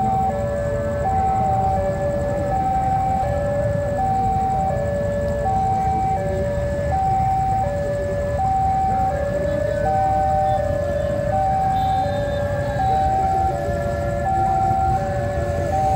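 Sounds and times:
level crossing two-tone alarm: 0.0 - 15.9
low rumble of engines: 0.0 - 15.9.

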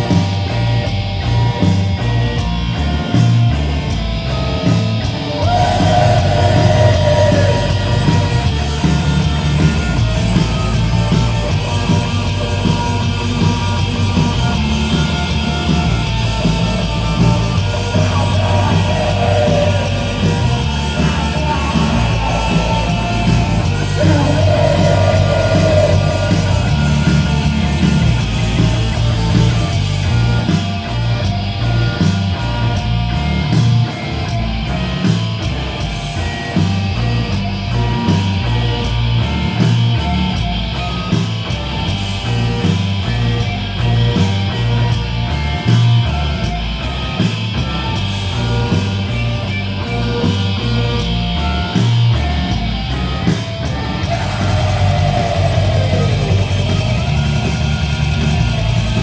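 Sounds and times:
distorted electric guitar: 0.0 - 59.0.

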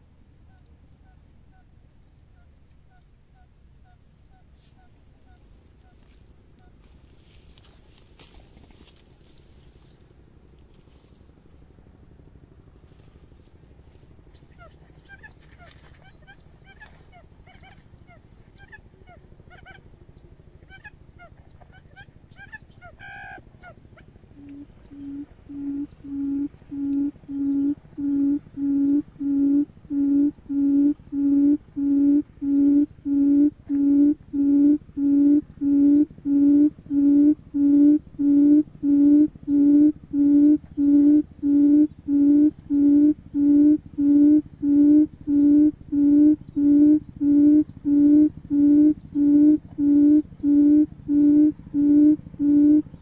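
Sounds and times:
buttonquail hooting: 14.3 - 20.0, 20.6 - 53.0
small birds chirping: 19.6 - 53.0.

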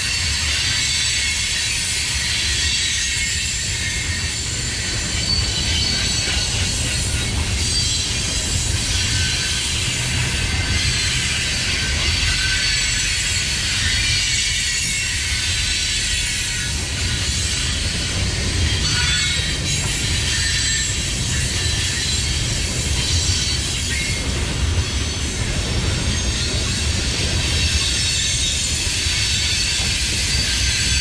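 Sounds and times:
train wheels rumbling on rails: 0.0 - 31.0
high-pitched wheel squeal: 2.2 - 24.3.

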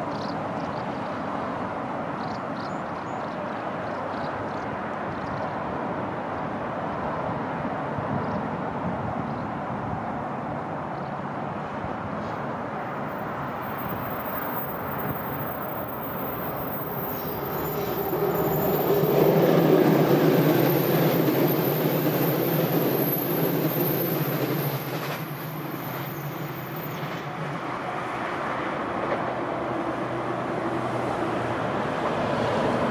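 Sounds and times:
electric train passing: 12.4 - 32.9.

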